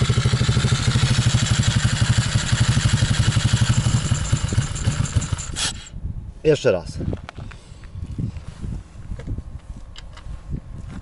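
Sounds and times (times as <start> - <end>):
small engine idling and stalling: 0.0 - 5.9.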